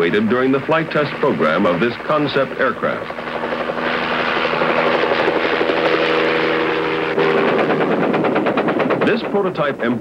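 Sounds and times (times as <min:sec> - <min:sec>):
helicopter droning in flight: 0:00.0 - 0:10.0
machine-gun fire: 0:03.4 - 0:09.5.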